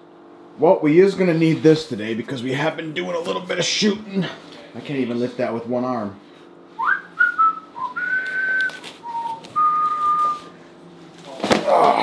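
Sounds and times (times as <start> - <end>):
person whistling a tune: 6.8 - 10.5.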